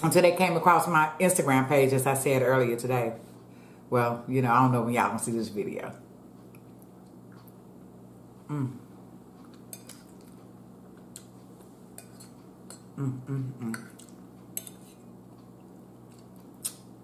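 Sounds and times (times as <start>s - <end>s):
person humming: 8.5s - 8.9s, 13.0s - 13.9s.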